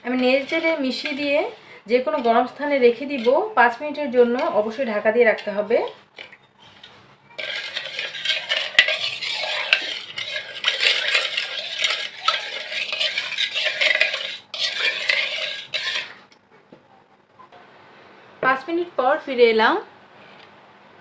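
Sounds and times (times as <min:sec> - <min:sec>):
spoon scraping and clinking in bowl: 0:02.0 - 0:05.6, 0:06.2 - 0:16.2.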